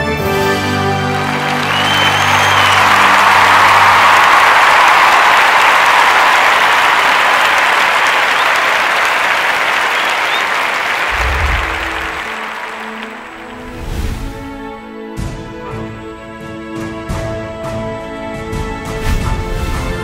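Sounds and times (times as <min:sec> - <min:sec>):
music: 0:00.0 - 0:06.9, 0:11.2 - 0:20.0
crowd applause: 0:00.2 - 0:14.6
low rumble: 0:11.1 - 0:12.5.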